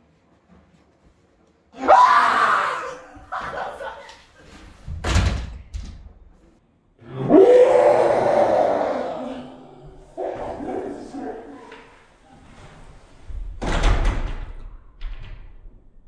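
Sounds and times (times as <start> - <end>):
man screaming: 1.8 - 3.2, 7.2 - 9.7.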